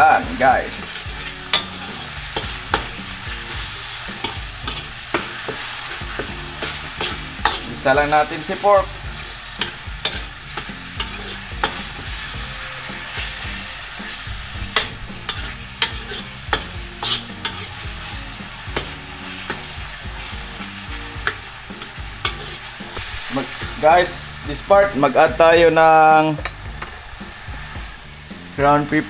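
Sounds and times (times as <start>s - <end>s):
metal ladle scraping wok: 0.0s - 28.4s
food sizzling in a wok: 0.0s - 29.0s
ladle clinking against wok: 14.8s - 17.8s.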